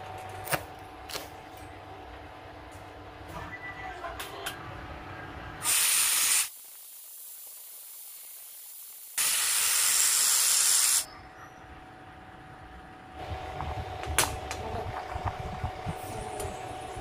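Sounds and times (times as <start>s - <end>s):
arc welding hiss: 5.6s - 11.1s.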